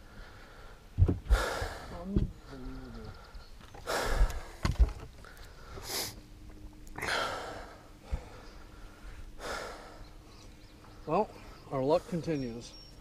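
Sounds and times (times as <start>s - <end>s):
heavy breaths: 0.0s - 6.2s, 7.0s - 12.4s.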